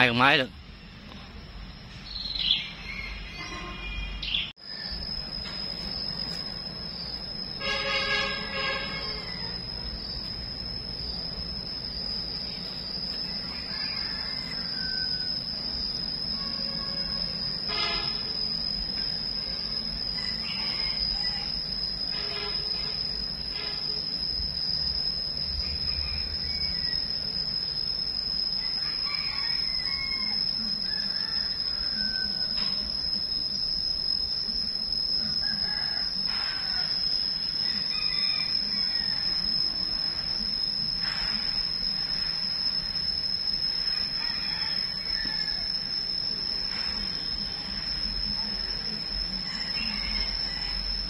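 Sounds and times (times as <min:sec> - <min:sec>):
high-pitched whine: 0:00.0 - 0:51.0.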